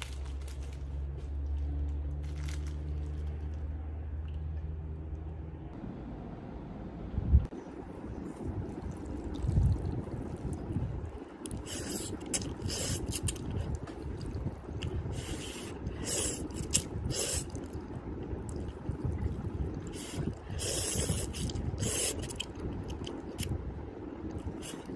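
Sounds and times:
low background rumble: 0:00.0 - 0:24.9
noodles being slurped: 0:08.9 - 0:23.5.

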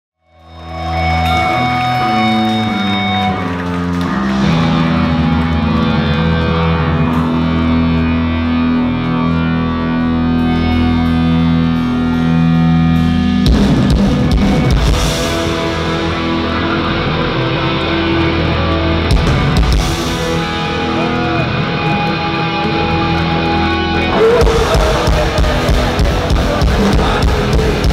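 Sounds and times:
electric guitar chords: 0:00.2 - 0:27.9
drums playing hard: 0:13.0 - 0:16.6, 0:19.1 - 0:22.7, 0:24.1 - 0:27.9.

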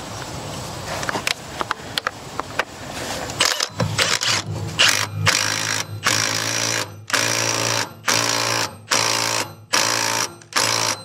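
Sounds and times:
impact wrench bursts: 0:03.4 - 0:11.0.

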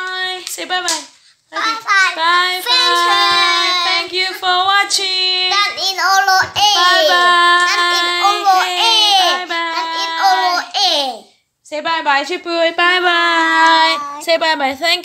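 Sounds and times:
child singing in a high voice: 0:01.6 - 0:04.4, 0:05.5 - 0:11.2.

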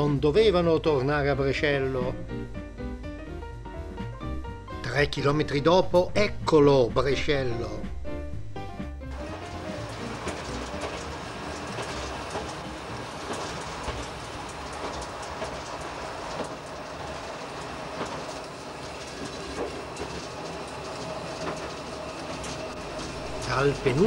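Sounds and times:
diesel railcar rumbling: 0:05.6 - 0:24.0
wheels clicking over rail joints: 0:09.1 - 0:24.0.

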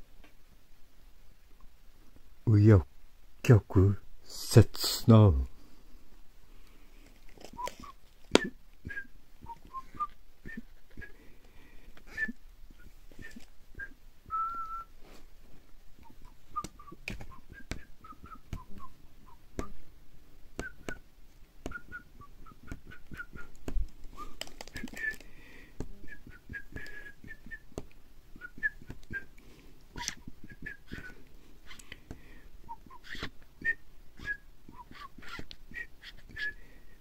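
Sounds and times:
sharp clicks and taps: 0:22.6 - 0:25.2.

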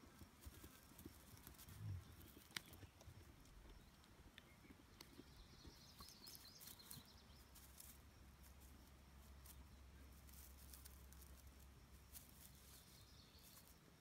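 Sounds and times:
faint high chirping: 0:01.0 - 0:14.0
faint rustles: 0:05.9 - 0:14.0.

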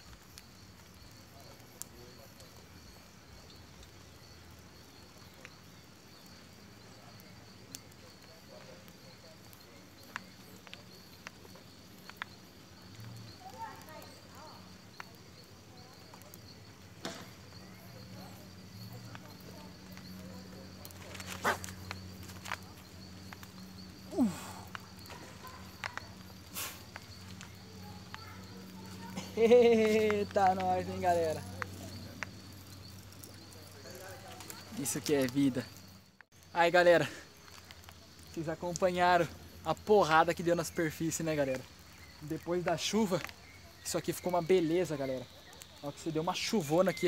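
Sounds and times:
high-pitched insect drone: 0:00.0 - 0:47.0.

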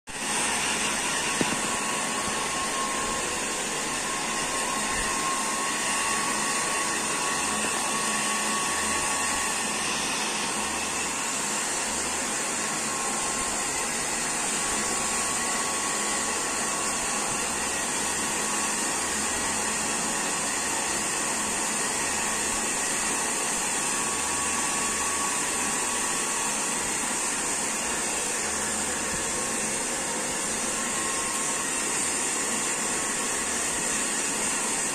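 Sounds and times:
hair dryer blowing: 0:00.1 - 0:34.9
hair dryer click: 0:01.3 - 0:01.8.

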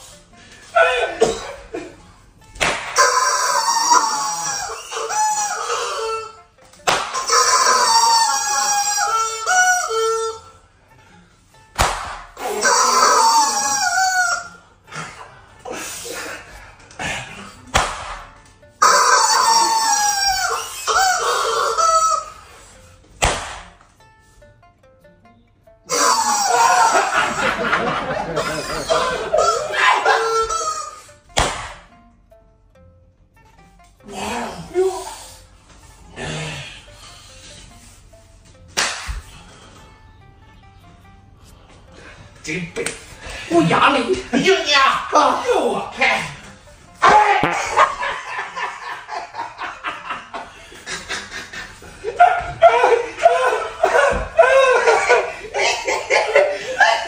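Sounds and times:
sharp smack: 0:02.6 - 0:03.0, 0:06.9 - 0:07.2, 0:11.8 - 0:12.4, 0:17.7 - 0:18.3, 0:23.2 - 0:23.8, 0:31.3 - 0:31.9, 0:38.8 - 0:39.2
rubber chicken toy squawking: 0:02.8 - 0:10.6, 0:12.4 - 0:14.6, 0:18.8 - 0:22.8, 0:25.9 - 0:31.2
slipper slap: 0:31.4 - 0:31.9.

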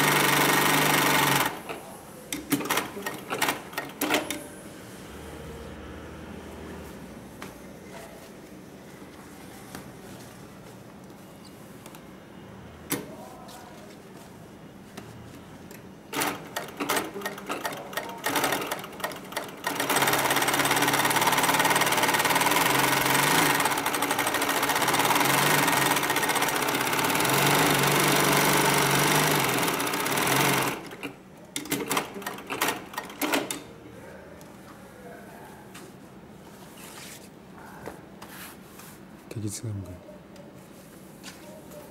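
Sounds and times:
industrial sewing machine stitching: 0:00.0 - 0:01.8, 0:02.5 - 0:04.4, 0:16.1 - 0:33.6.

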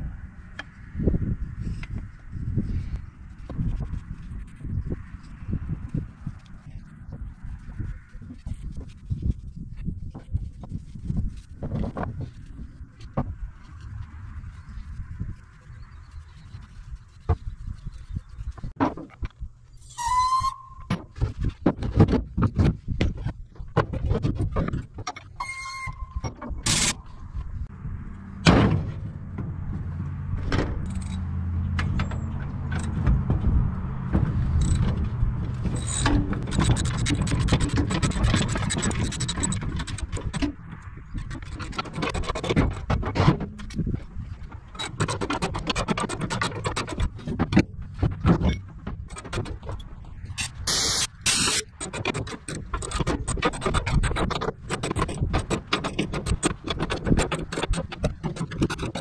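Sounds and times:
scissor jack scraping and clicking: 0:24.2 - 0:27.1, 0:34.4 - 0:44.0, 0:44.6 - 0:47.7, 0:48.4 - 0:59.0.

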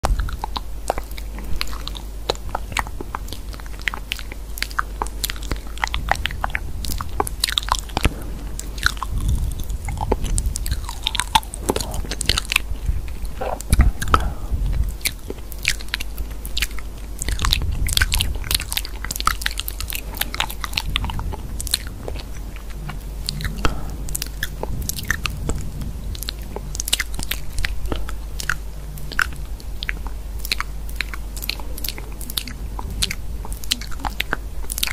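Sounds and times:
crisp crunching and clicking: 0:00.0 - 0:34.9
steady low hum: 0:00.0 - 0:34.9.

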